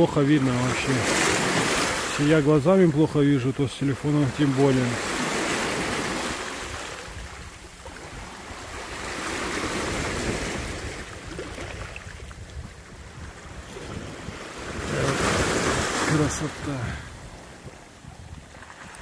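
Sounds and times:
sea waves washing ashore: 0.0s - 19.0s
wind rumble on microphone: 5.8s - 19.0s.

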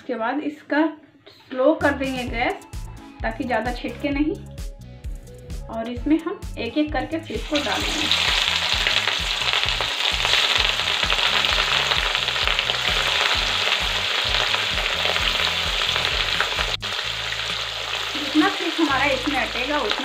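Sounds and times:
fish sizzling in hot oil: 7.3s - 20.0s.

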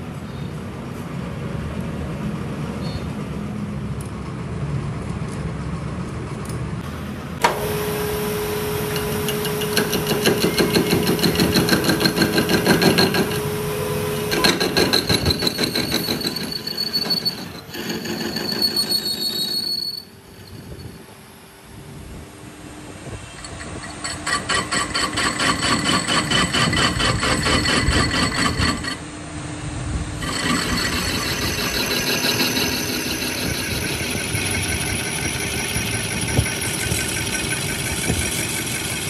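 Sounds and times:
lathe machine hum: 6.8s - 16.0s, 30.2s - 39.0s
tool squealing on steel: 8.8s - 21.2s, 23.2s - 29.0s, 30.2s - 39.0s
cutting tool rattling chatter: 30.2s - 39.0s.

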